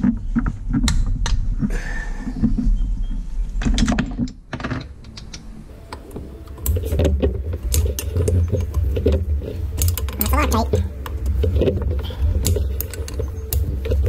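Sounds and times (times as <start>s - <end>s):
hand tools clicking and knocking: 5.9s - 14.0s.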